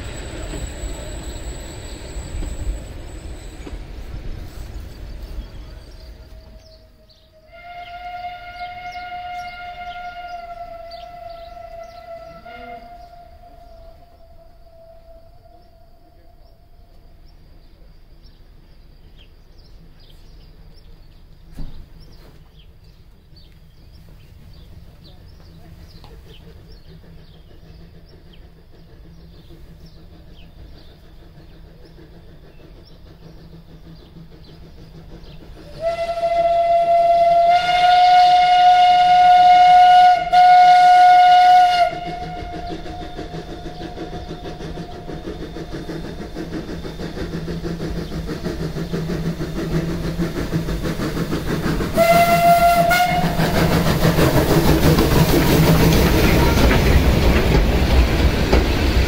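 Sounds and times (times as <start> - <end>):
steam locomotive whistle: 0.0 - 4.6, 5.4 - 17.2, 35.6 - 46.1, 51.7 - 57.4
train running past: 0.0 - 59.0.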